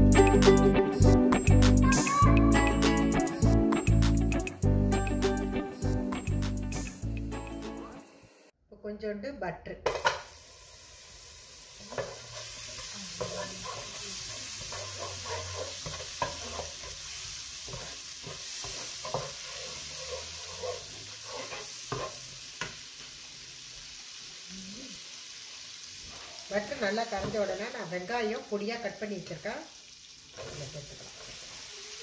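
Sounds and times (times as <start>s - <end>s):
butter sizzling in frying pan: 10.2s - 32.0s
spatula scraping and tapping pan: 11.9s - 22.8s.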